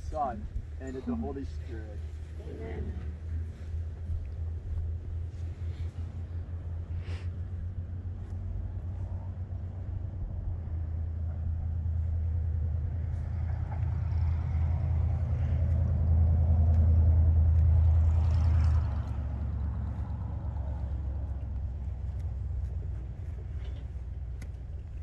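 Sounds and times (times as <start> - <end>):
low rumble: 0.0 - 25.0.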